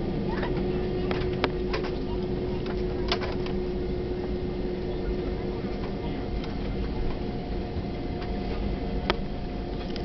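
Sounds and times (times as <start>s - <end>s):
aircraft cabin rumble: 0.0s - 10.0s
jet engine hum: 0.0s - 10.0s.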